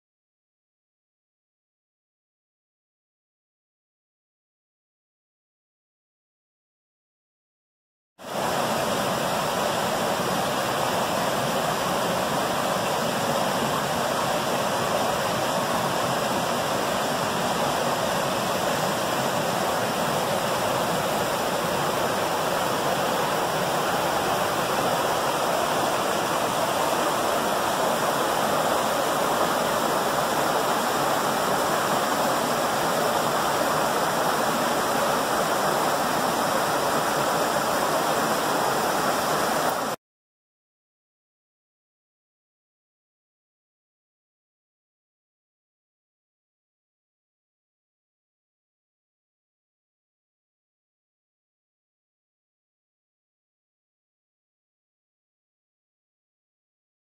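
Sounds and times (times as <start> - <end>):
creek rushing over boulders: 8.3 - 40.0.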